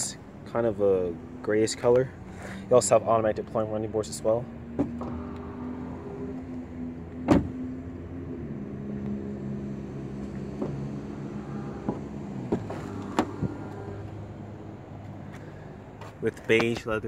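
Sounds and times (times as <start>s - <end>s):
electric motor hum: 4.6s - 15.2s
car door clicking and opening: 4.7s - 7.6s, 10.2s - 14.2s.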